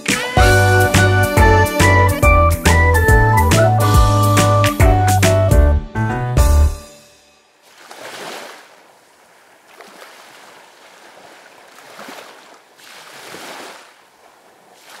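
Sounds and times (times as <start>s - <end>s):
surf washing over sand: 7.6s - 15.0s.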